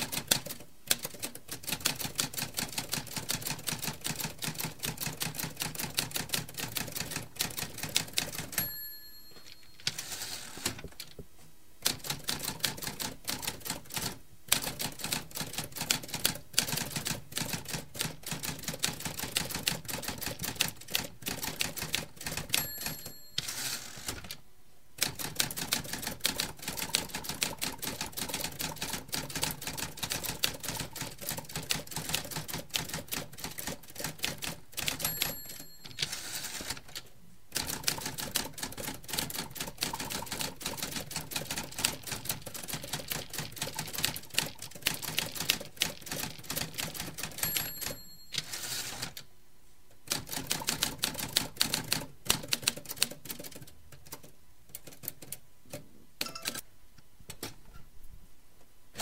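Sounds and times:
typewriter typing: 0:00.0 - 0:08.8, 0:11.8 - 0:24.4, 0:25.0 - 0:49.2, 0:50.1 - 0:56.6
typewriter bell ding: 0:08.4 - 0:10.2, 0:22.5 - 0:24.0, 0:34.9 - 0:36.6, 0:47.3 - 0:49.0, 0:56.2 - 0:56.6.

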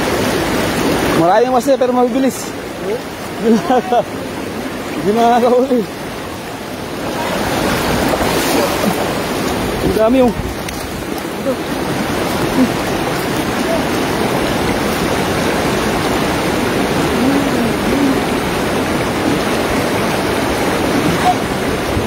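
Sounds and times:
stream water rushing: 0:00.0 - 0:22.0
person wading in water: 0:05.9 - 0:22.0.

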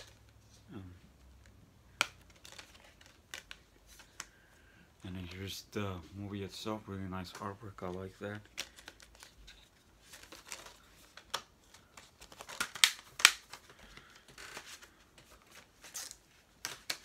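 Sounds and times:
plastic cases clicking and snapping: 0:01.4 - 0:04.4, 0:08.4 - 0:14.8.

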